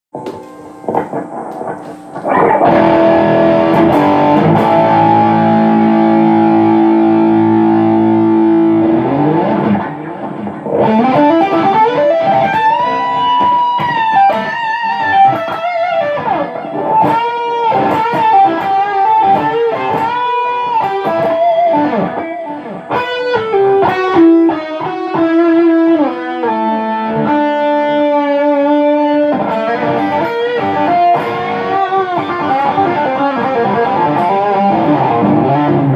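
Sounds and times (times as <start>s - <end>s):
overdriven electric guitar: 0.2s - 35.9s.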